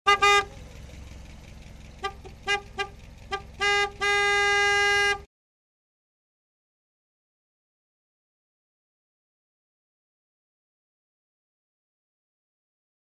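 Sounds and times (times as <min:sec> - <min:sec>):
car horn honking: 0:00.0 - 0:05.3
low steady rumble: 0:00.1 - 0:05.3.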